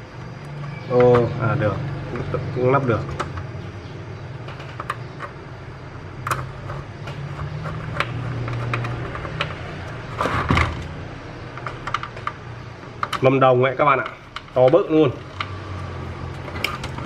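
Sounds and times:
steady low hum: 0.0s - 17.0s
light clicks and knocks of parts: 6.2s - 10.0s, 11.5s - 17.0s.

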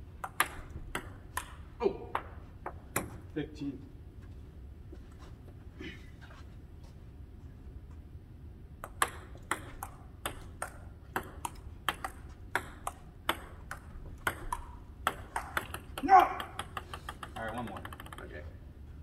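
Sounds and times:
table tennis ball clicking: 0.2s - 1.6s, 8.8s - 18.4s.

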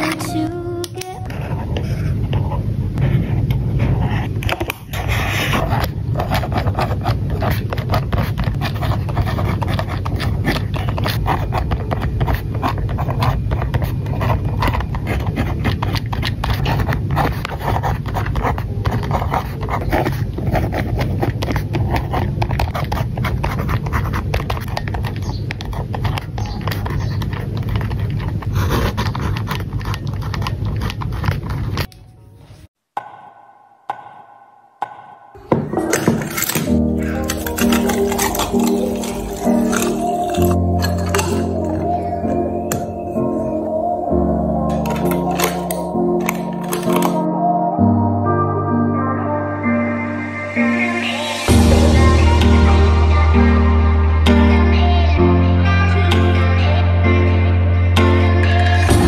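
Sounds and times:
pen scratching on paper: 1.3s - 31.9s, 35.7s - 43.6s, 44.7s - 47.2s.

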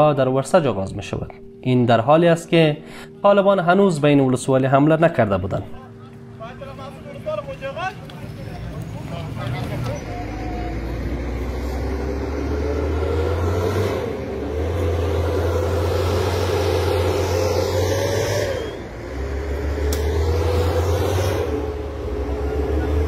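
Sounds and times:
vehicle engine under load: 8.6s - 23.0s.

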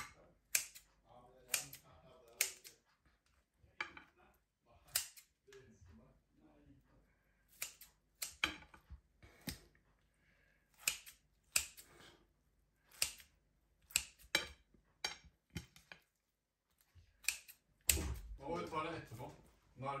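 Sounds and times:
scissors snipping: 0.0s - 0.9s, 1.5s - 2.8s, 4.9s - 5.3s, 7.5s - 8.7s, 10.8s - 11.9s, 12.9s - 13.3s, 13.9s - 14.6s, 17.2s - 18.3s.

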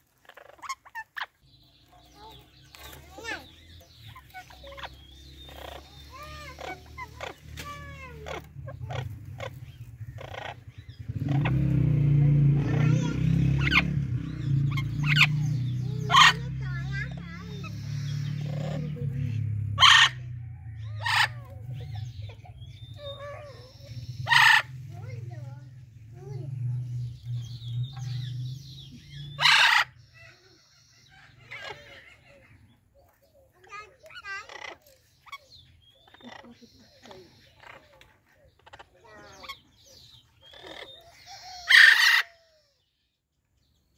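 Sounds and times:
parrots chirping and squawking: 0.0s - 43.2s
parrot harsh squawk: 0.2s - 1.4s, 16.0s - 17.8s, 19.8s - 20.3s, 21.0s - 21.4s, 24.2s - 24.7s, 29.4s - 30.4s, 31.1s - 32.5s, 34.2s - 35.4s, 40.4s - 42.8s.

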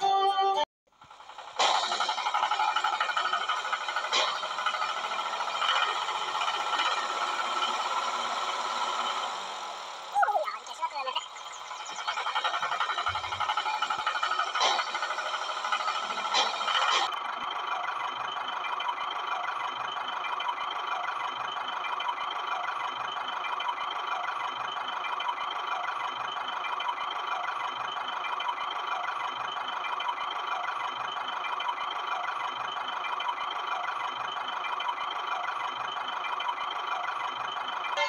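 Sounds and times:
toy electric motor whining: 10.9s - 17.1s.

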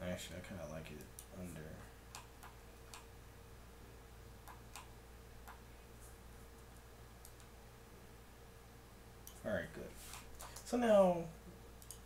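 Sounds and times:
faint steady hum: 0.0s - 12.0s
mouse and keyboard clicks: 11.8s - 12.0s.

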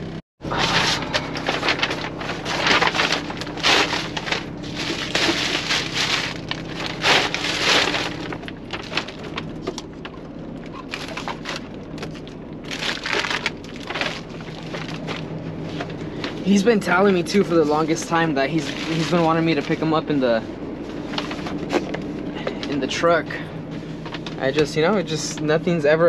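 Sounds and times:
steady low hum: 0.0s - 26.0s
plastic bag crinkling: 0.6s - 15.3s, 17.9s - 20.0s.

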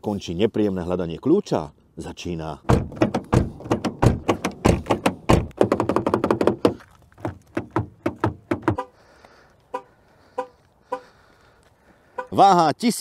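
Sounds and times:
car door handle thunks and clicks: 2.7s - 8.9s.

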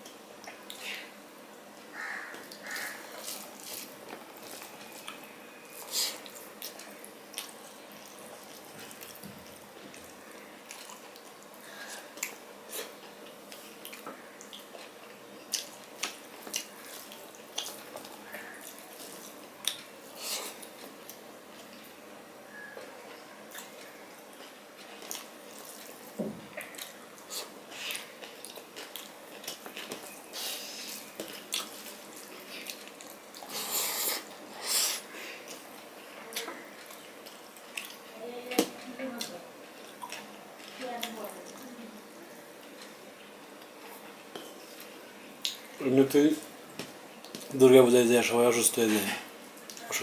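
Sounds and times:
wet smacking chewing: 35.4s - 38.0s.

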